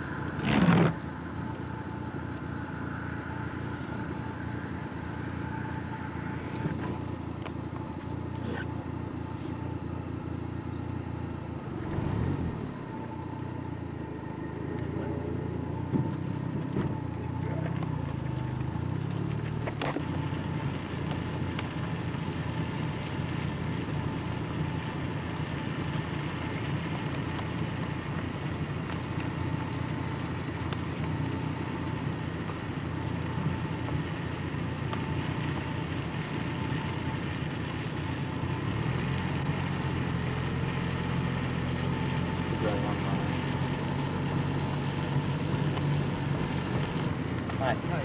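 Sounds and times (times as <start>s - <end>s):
car engine hum and road noise: 0.0s - 48.0s.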